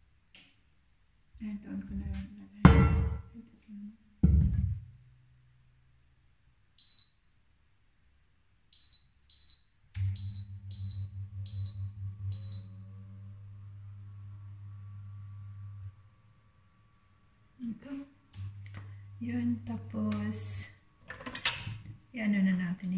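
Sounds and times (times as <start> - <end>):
low steady hum: 1.2 - 6.2, 10.0 - 22.9
knock: 2.7 - 3.2, 4.2 - 4.8
cooktop touch controls beeping: 8.8 - 13.3.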